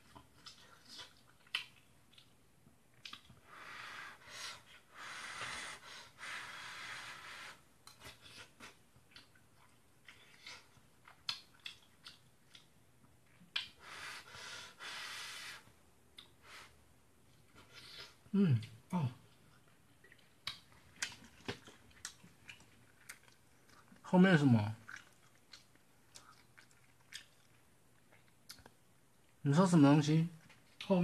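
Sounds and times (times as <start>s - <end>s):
chewing: 0.0s - 3.4s, 7.8s - 13.8s, 17.3s - 24.0s, 24.8s - 29.4s.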